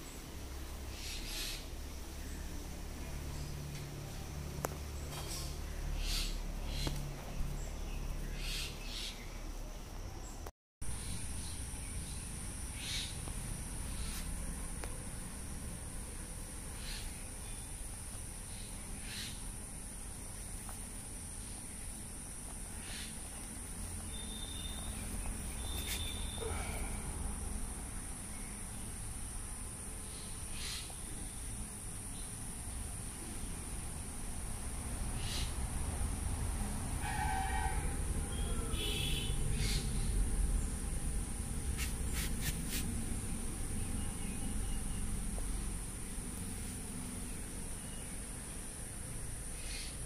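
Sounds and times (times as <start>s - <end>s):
insect drone: 0.0s - 50.0s
cricket trill: 4.3s - 50.0s
light rustle: 24.7s - 27.0s, 41.6s - 43.0s
thin high whistles: 25.6s - 26.7s.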